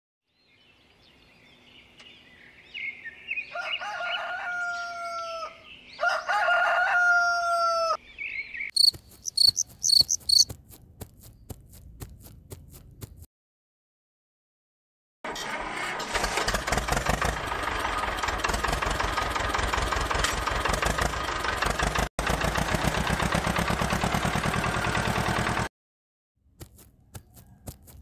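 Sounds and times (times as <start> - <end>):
rooster crowing: 3.4 - 8.0, 27.2 - 28.0
small birds chirping: 8.0 - 12.8.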